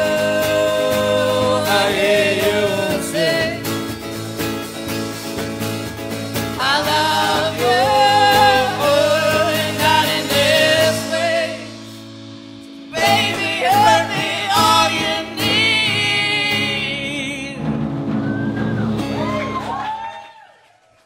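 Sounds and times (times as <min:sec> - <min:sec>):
person singing: 0:00.0 - 0:03.9, 0:06.6 - 0:12.0, 0:12.9 - 0:17.9
acoustic guitar strumming: 0:00.0 - 0:20.0.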